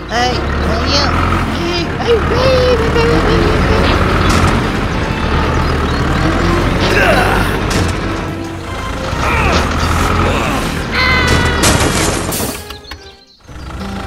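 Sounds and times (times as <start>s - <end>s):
background music: 0.0s - 14.0s
tractor engine rumble: 0.0s - 14.0s
crash: 11.2s - 12.8s.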